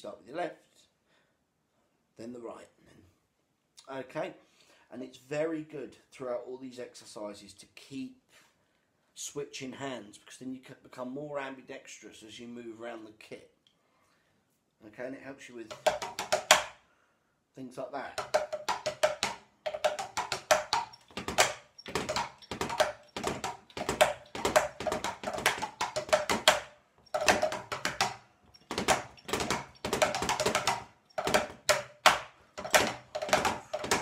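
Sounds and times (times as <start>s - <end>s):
drumsticks on practice drum pads: 15.7s - 16.8s, 18.2s - 34.0s.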